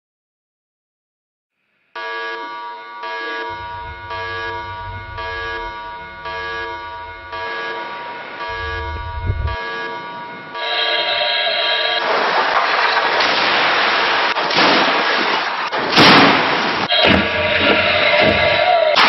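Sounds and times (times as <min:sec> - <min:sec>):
droning electronic tones: 0:02.0 - 0:12.0
loud rushing noise: 0:03.5 - 0:09.6
car crashing into barrier: 0:12.0 - 0:17.4.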